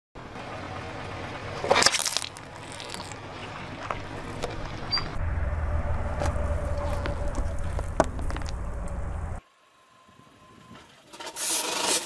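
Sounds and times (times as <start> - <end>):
plastic cup crunching under tyre: 1.6 - 4.6
low rumble: 3.8 - 9.4.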